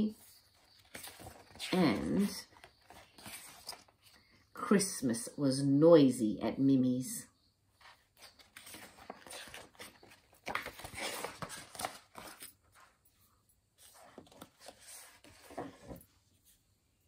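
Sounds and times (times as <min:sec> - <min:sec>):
book pages turning: 0:00.1 - 0:04.3, 0:07.8 - 0:13.0, 0:13.8 - 0:16.1.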